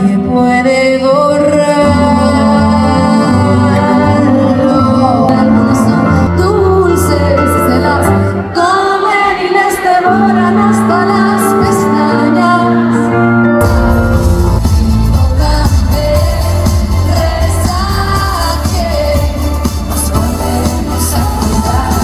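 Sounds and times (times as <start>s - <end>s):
woman singing: 0.0s - 13.1s, 14.9s - 22.0s
piano accompaniment: 0.1s - 22.0s.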